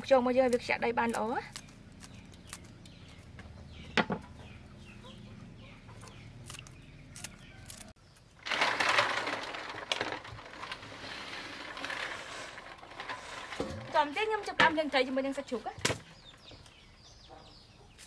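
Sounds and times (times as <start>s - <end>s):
chickens clucking: 3.0s - 6.5s
scissors snipping: 6.4s - 8.0s.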